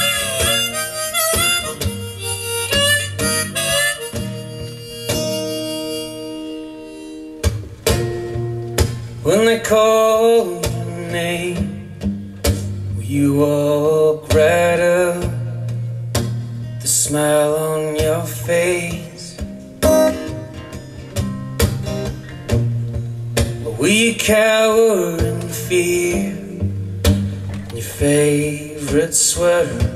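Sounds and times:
strummed acoustic guitar: 0.0s - 29.9s
man singing: 9.2s - 12.0s, 12.6s - 15.9s, 16.8s - 19.5s, 23.6s - 26.8s, 27.7s - 29.9s.

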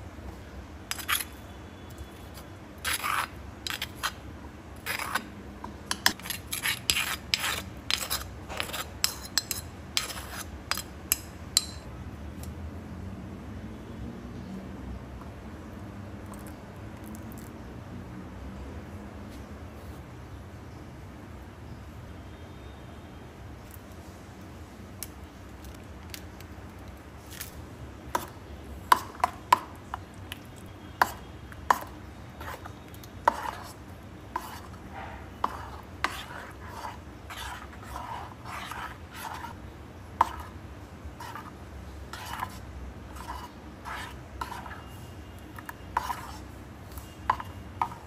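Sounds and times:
spoon stirring thick pulp: 0.9s - 11.8s, 25.0s - 48.0s.

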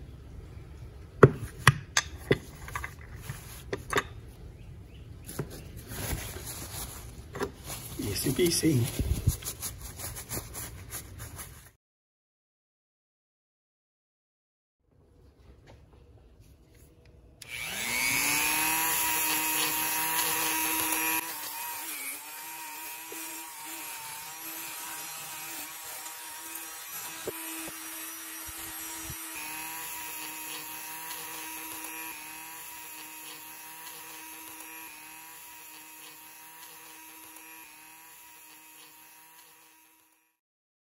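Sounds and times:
handheld power tool whining: 17.4s - 40.4s.

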